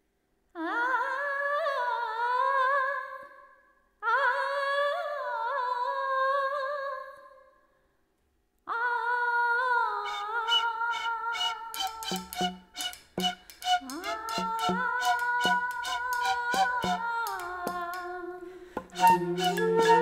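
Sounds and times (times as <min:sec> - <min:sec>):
wavering high notes: 0:10.0 - 0:18.1, 0:18.8 - 0:20.0
tune with plucked beats: 0:11.4 - 0:18.0, 0:18.8 - 0:20.0.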